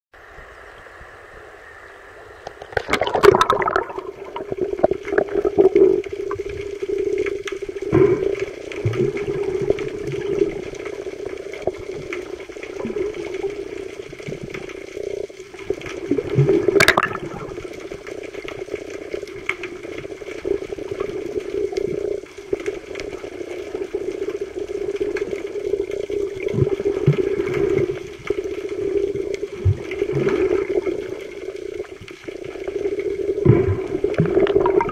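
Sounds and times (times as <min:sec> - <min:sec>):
underwater sloshing and bubbling: 0:00.2 - 0:34.9
splash into water: 0:02.7 - 0:04.5.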